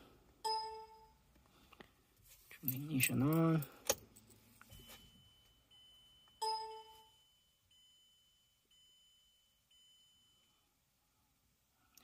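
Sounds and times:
faint high beep: 0.5s - 1.2s, 4.7s - 10.7s
low electronic chime: 4.8s - 10.6s.

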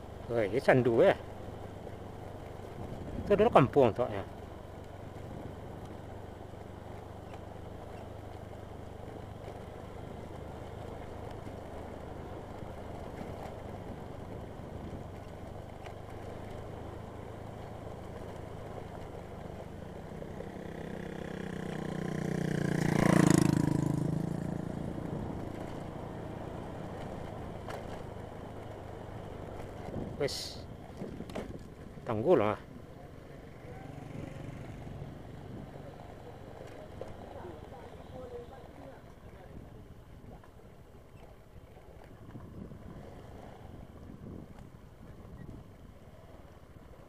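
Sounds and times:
small vehicle engine running: 0.0s - 39.7s
road and wind noise: 0.0s - 47.0s
vehicle passing close: 19.9s - 30.0s, 33.3s - 38.9s.

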